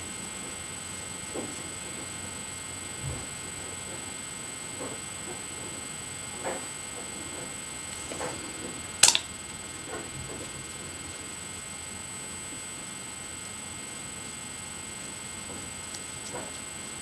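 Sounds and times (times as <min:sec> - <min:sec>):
sharp click: 0:09.0 - 0:09.3.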